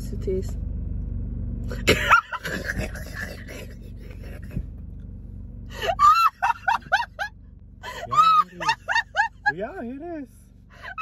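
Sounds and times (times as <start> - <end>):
low steady car hum: 0.0 - 11.0
shrieking laughter: 5.8 - 9.5.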